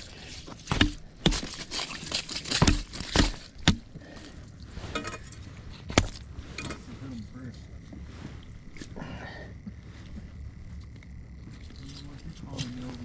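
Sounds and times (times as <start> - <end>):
fish knocked on ice: 0.6 - 3.9.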